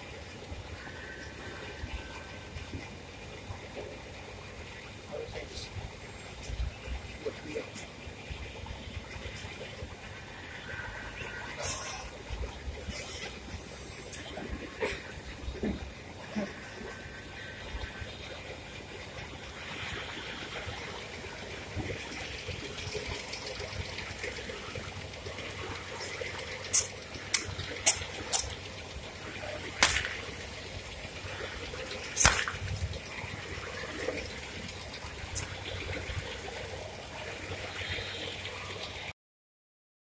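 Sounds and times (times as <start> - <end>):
balloon rubber snapping: 32.2 - 32.6.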